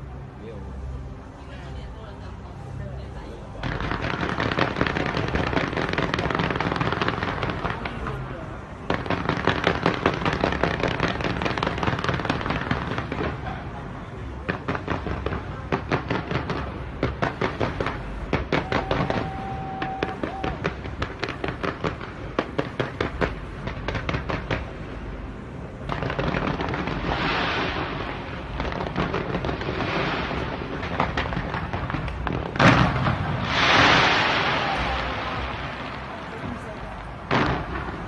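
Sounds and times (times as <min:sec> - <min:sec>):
fireworks crackling: 0:03.0 - 0:38.0
fireworks bangs and pops: 0:03.6 - 0:25.0, 0:25.8 - 0:38.0
firework whistle: 0:18.4 - 0:20.9.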